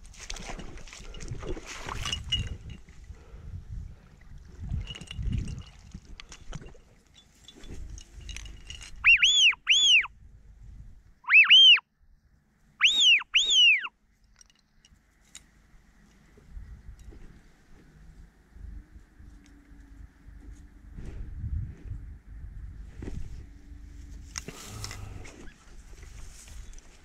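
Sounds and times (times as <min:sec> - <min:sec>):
loud whistled calls: 0:09.0 - 0:10.1, 0:11.2 - 0:11.8, 0:12.8 - 0:13.9.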